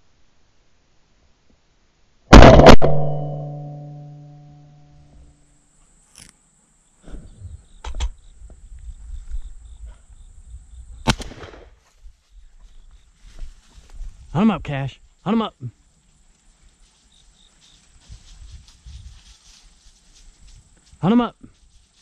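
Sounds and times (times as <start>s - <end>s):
loud shotgun shot: 2.3s - 4.0s, 11.0s - 11.8s.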